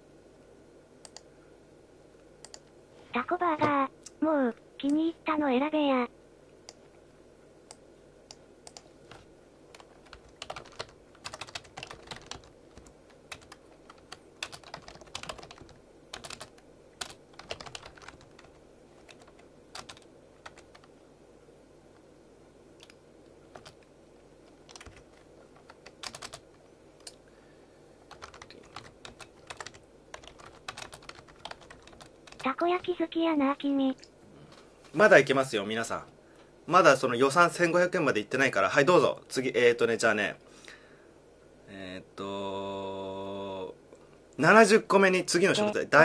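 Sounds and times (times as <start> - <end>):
computer keyboard typing: 2.4 - 2.7, 8.6 - 20.9, 22.8 - 23.9, 24.7 - 26.4, 28.1 - 32.9.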